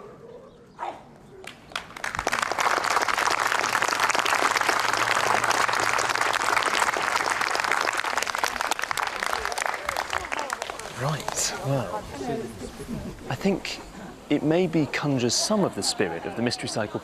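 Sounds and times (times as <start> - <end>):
audience applauding: 1.4 - 11.8.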